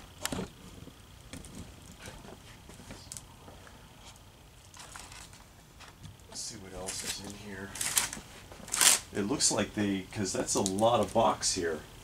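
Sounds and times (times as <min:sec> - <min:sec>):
packing material rustling: 0:04.6 - 0:05.4, 0:06.8 - 0:09.1.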